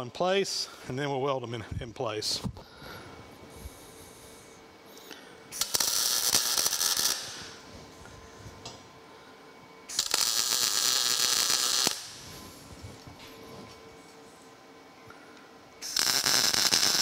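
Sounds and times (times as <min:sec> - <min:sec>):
welding arc crackling and hissing: 0:05.5 - 0:08.4, 0:09.9 - 0:13.1, 0:15.8 - 0:17.0.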